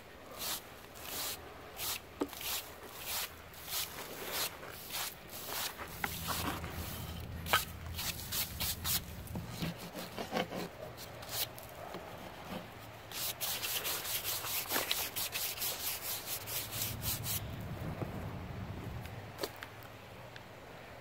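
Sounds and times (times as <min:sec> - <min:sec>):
stiff brush sweeping sawdust: 0:00.3 - 0:10.3, 0:13.1 - 0:17.6.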